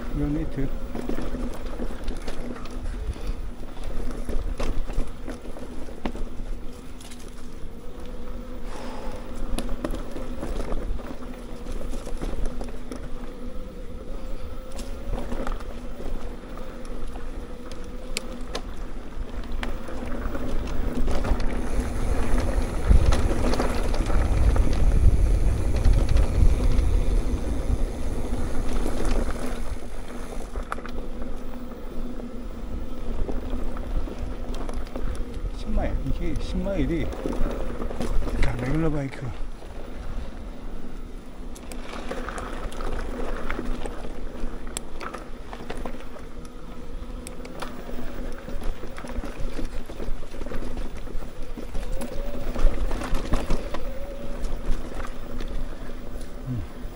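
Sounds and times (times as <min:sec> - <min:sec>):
bike clicks and rattles over bumps: 0:00.0 - 0:56.9
bike tyres on dirt trail: 0:00.0 - 0:56.9
wind rushing over microphone: 0:13.0 - 0:56.9.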